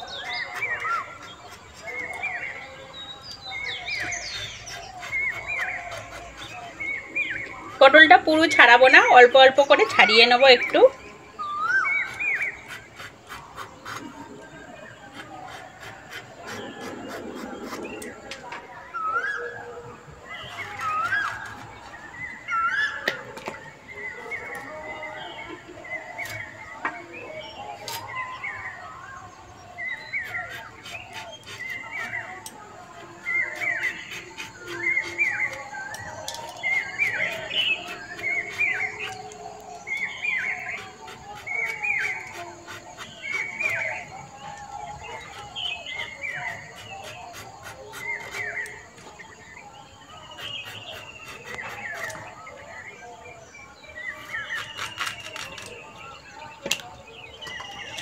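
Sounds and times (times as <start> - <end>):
birds chirping: 0.0 - 58.0
long falling bird whistle: 10.9 - 12.9.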